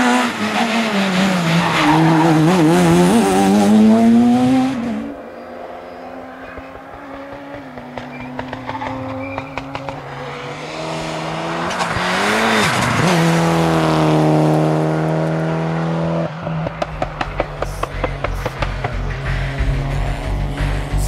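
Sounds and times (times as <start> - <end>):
rally car engine passing: 0.0 - 21.0
sharp exhaust pops: 6.6 - 10.0, 16.6 - 20.0.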